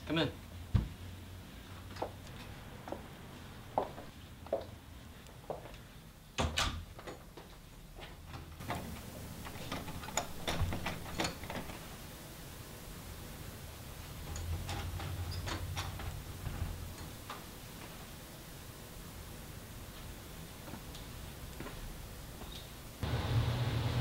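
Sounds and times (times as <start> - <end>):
door shutting: 8.6 - 11.9
doorknob and lock rattling: 9.6 - 11.7.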